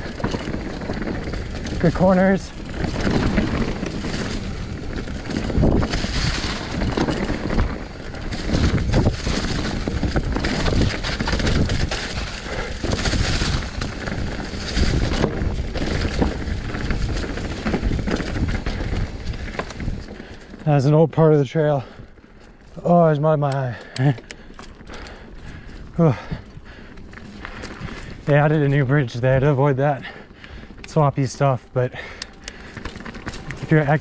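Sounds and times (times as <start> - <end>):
bike knocking and clattering: 0.0 - 34.0
tyres crackling through dry leaves: 0.0 - 34.0
wind on microphone: 2.5 - 20.2.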